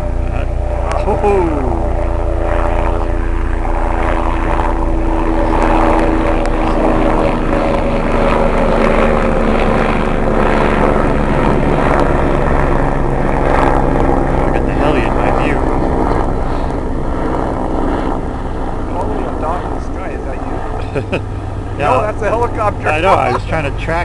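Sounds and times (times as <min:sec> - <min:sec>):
electric motor buzzing drone: 0:00.0 - 0:24.0.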